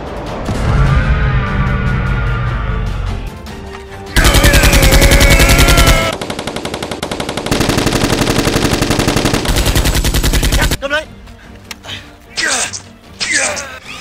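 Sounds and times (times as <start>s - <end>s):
rapid automatic gunfire: 4.2s - 10.8s.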